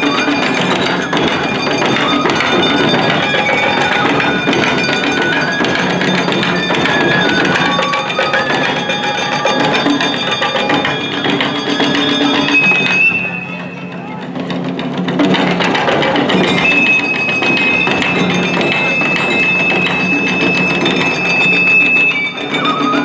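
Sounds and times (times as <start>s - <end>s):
high held melody: 0.0s - 23.0s
taiko drums fast strikes: 0.0s - 23.0s.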